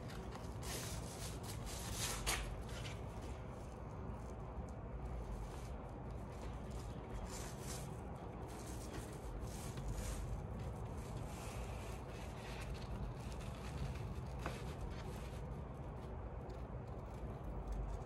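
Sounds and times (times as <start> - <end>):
scissors cutting paper: 0.0 - 3.2
low steady hum: 0.0 - 18.0.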